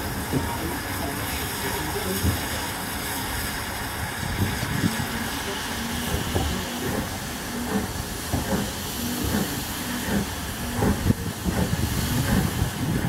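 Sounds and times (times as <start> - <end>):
steady steam hiss: 0.0 - 13.0
train wheels knocking on track: 5.9 - 13.0.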